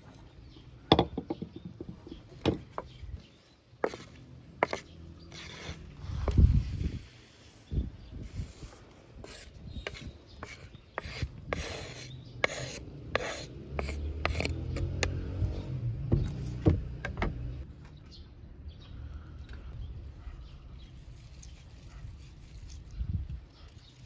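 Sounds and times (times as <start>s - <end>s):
wooden spatula scraping cutting board: 3.8s - 6.4s, 9.2s - 15.2s.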